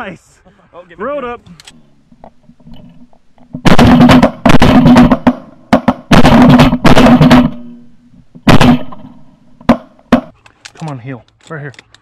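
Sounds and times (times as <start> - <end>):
shotguns firing: 3.5 - 10.3.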